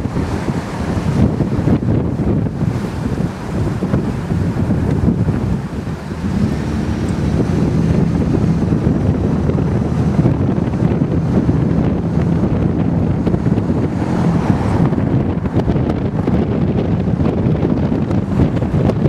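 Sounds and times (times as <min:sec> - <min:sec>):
low engine rumble: 0:00.0 - 0:19.0
wind buffeting microphone: 0:00.0 - 0:19.0.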